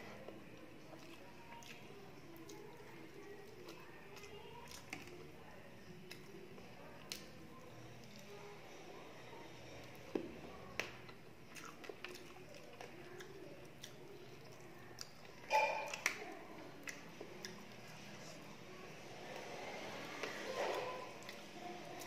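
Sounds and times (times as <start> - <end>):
person chewing: 11.1 - 16.2.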